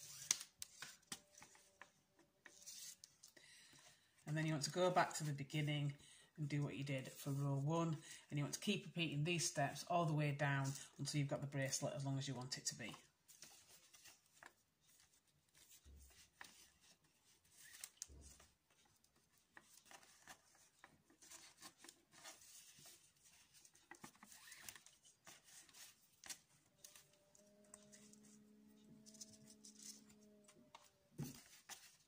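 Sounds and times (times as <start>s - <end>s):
cord rustling and rubbing: 0.0s - 3.4s, 12.5s - 32.0s.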